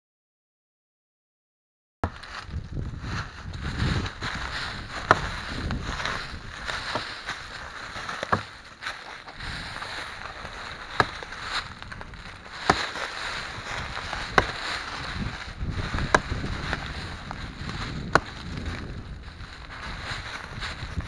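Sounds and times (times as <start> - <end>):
hatchet chopping tree bark: 5.1 - 5.3, 8.0 - 8.6, 10.7 - 15.0, 16.0 - 16.8, 18.0 - 18.4.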